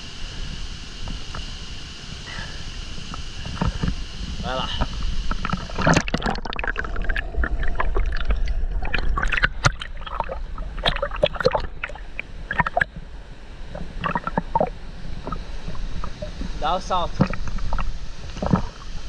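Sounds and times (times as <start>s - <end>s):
low watery rumble: 0.0s - 19.0s
water sloshing and splashing: 4.9s - 13.1s, 13.7s - 19.0s.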